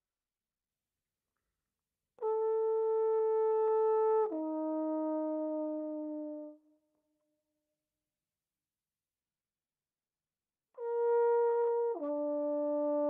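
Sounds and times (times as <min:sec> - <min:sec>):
trombone holding long notes: 0:02.2 - 0:06.5, 0:10.8 - 0:13.0.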